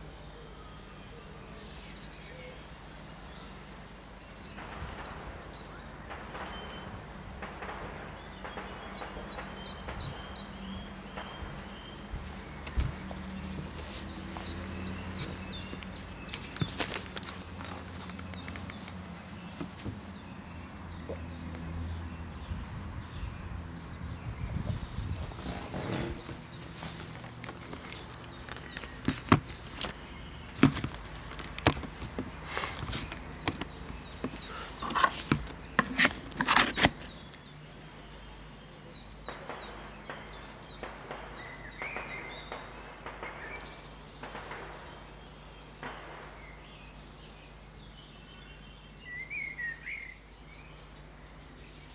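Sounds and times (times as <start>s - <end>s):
pulsing insect chirp: 0.0s - 51.9s
distant rifle shots: 6.1s - 10.3s, 39.3s - 45.1s.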